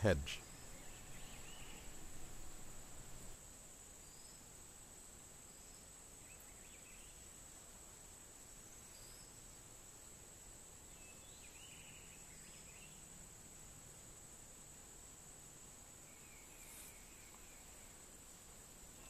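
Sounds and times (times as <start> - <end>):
faint chirps: 0.0 - 3.4, 16.0 - 18.1.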